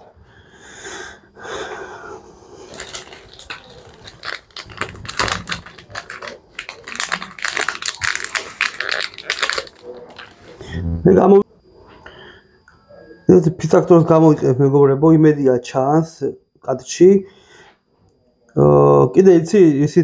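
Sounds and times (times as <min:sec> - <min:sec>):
hands rummaging plastic items: 0:02.7 - 0:10.4.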